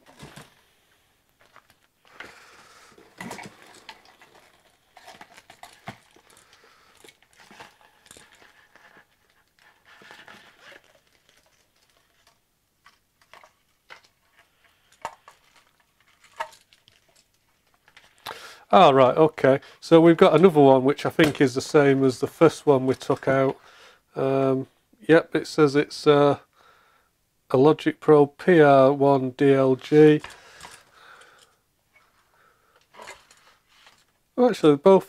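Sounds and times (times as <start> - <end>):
plastic parts clicking and knocking: 1.4 - 18.4.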